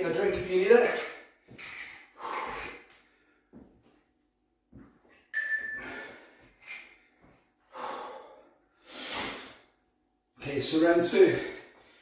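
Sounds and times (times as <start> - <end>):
man breathing hard: 1.0 - 3.7, 5.8 - 9.8, 11.3 - 12.0
high whistling breath tone: 5.3 - 6.9.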